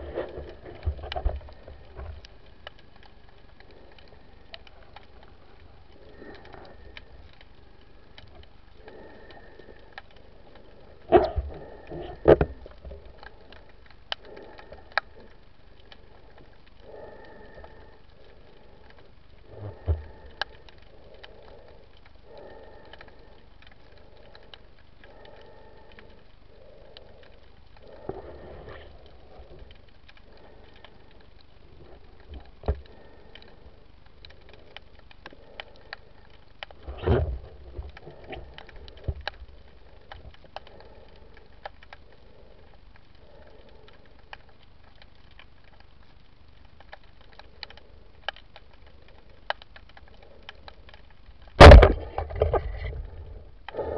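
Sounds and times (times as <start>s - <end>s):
faint underwater hiss: 1.5s - 53.9s.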